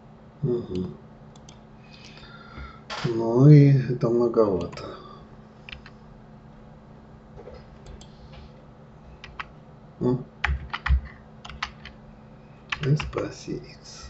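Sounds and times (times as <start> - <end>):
computer keyboard key clicks: 10.4 - 12.0.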